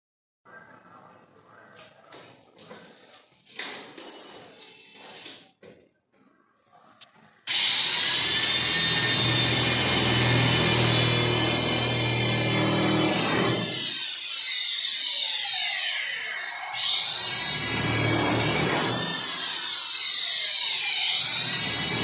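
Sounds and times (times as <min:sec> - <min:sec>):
electric drill boring into metal: 0:07.5 - 0:22.0.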